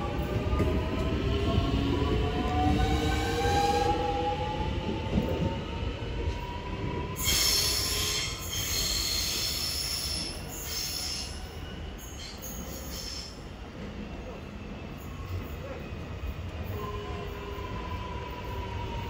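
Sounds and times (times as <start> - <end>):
train wheel squeal: 7.2 - 13.5.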